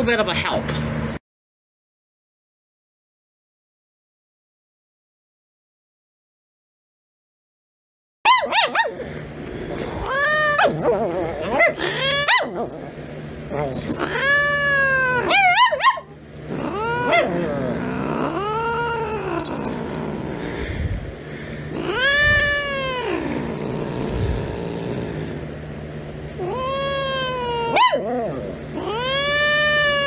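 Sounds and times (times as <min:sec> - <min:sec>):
cat meowing: 0:09.9 - 0:12.5, 0:14.0 - 0:15.7, 0:16.5 - 0:19.5, 0:21.8 - 0:24.5, 0:26.4 - 0:28.1, 0:28.8 - 0:30.0.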